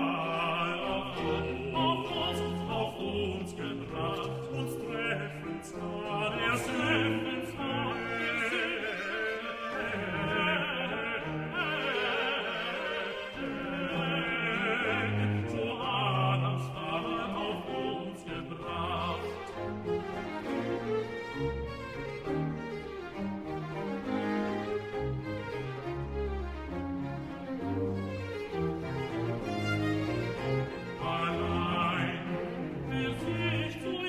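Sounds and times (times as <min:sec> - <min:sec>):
tenor and bass voices singing: 0:00.0 - 0:19.6, 0:30.8 - 0:34.0
violins in unison: 0:00.0 - 0:34.0.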